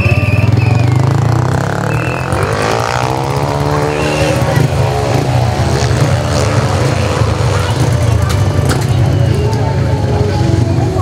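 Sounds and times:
motor vehicle engine passing by: 0.4s - 9.2s.

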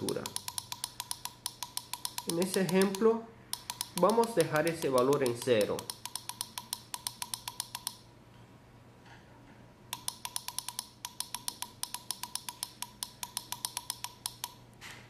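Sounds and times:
rapid push button clicking: 0.0s - 8.0s.

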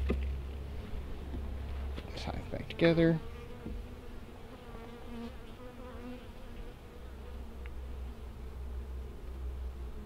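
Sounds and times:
bees buzzing: 2.6s - 10.0s.

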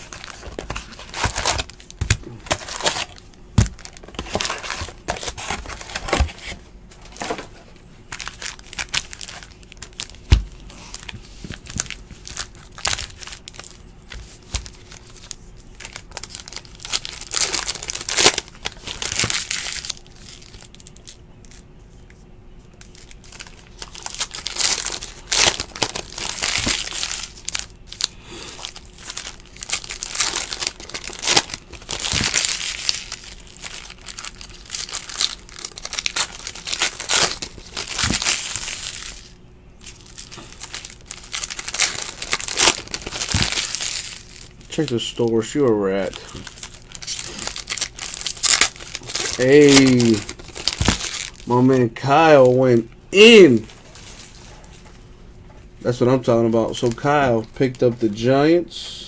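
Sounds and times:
foil wrappers crinkling and tearing: 0.0s - 54.9s, 55.9s - 58.4s
faint steady hum: 0.0s - 59.0s
cards shuffled by hand: 49.0s - 51.5s.

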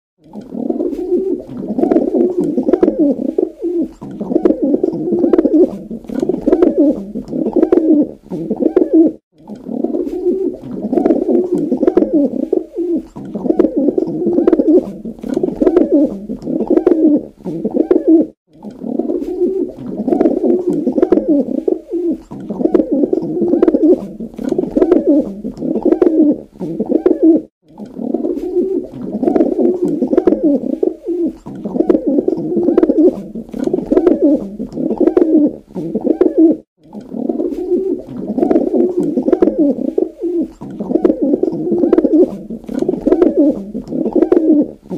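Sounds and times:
pigeon cooing: 0.2s - 44.9s.

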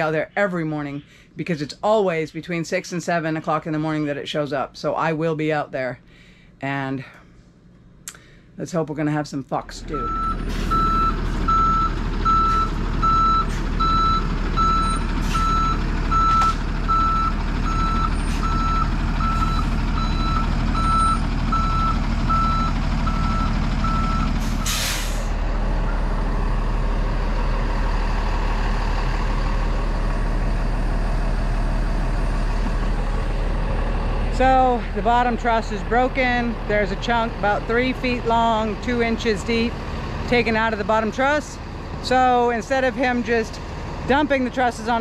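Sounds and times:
diesel engine running: 9.6s - 45.0s
reversing alarm beeping: 9.9s - 25.2s
air brake hiss: 24.4s - 25.4s.

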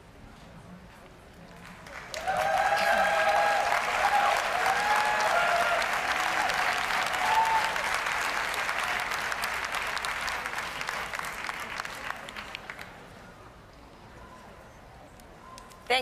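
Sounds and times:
audience applauding: 1.6s - 13.0s.

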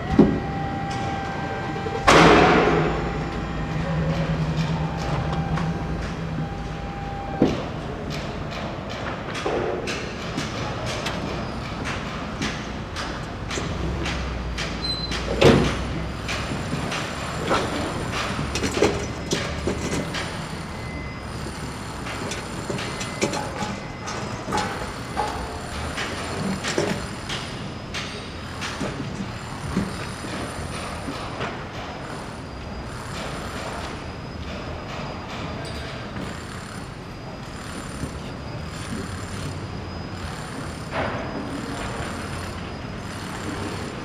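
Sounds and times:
low rumble of machinery: 0.0s - 44.0s
sharp knocks and bangs: 0.1s - 11.0s.

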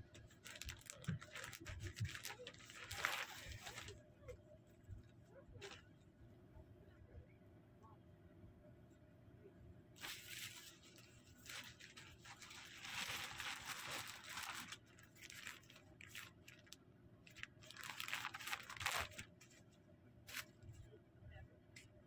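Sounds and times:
plastic bags crinkling: 0.0s - 4.0s, 10.0s - 19.6s, 20.3s - 20.7s.

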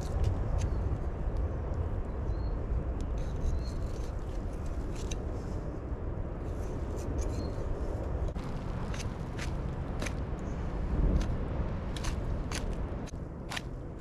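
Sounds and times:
steady low rumble: 0.0s - 14.0s
knife clicks and scrapes: 3.1s - 5.2s, 11.9s - 13.7s.

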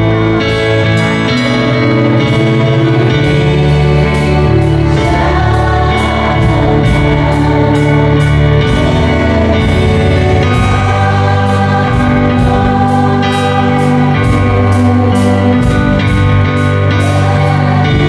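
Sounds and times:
bass: 0.0s - 18.0s
electronic keyboard chords: 0.0s - 18.0s.

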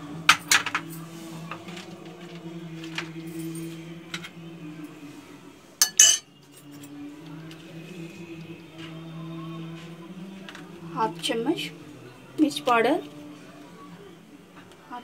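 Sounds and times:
spoon clinking on ceramic plate: 5.8s - 6.3s.

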